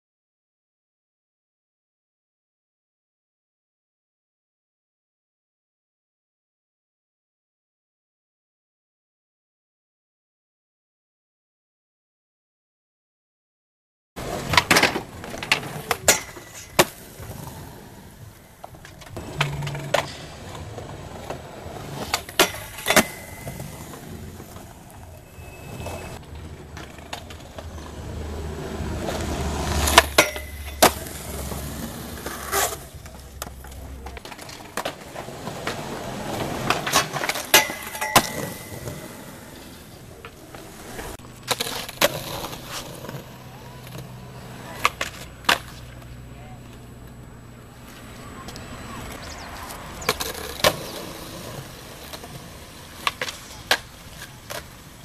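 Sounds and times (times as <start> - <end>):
skateboard pops and landings: 14.2 - 17.6
skateboard wheels rolling on concrete: 14.2 - 55.0.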